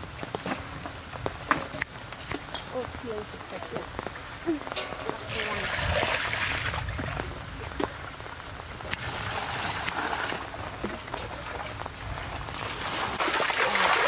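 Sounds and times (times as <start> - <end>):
water splashing into metal basin: 4.8 - 7.2, 12.6 - 14.0.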